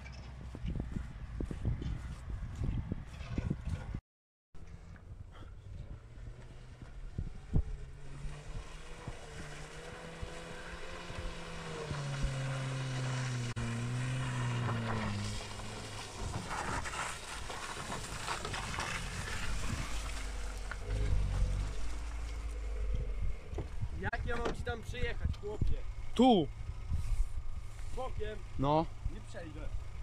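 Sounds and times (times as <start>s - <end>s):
car engine: 4.6s - 30.0s
tyres splashing through mud: 8.2s - 22.9s.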